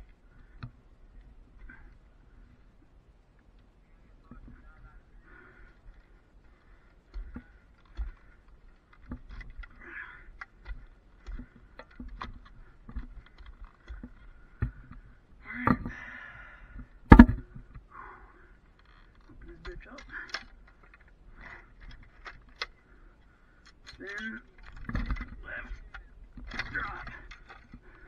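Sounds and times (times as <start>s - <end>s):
climbing hardware clicking on pole: 5.3s - 16.0s, 18.6s - 28.0s.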